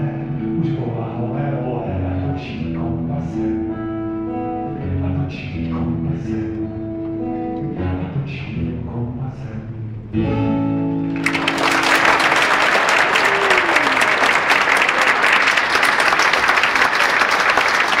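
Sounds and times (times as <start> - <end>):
audience applause: 11.1 - 18.0.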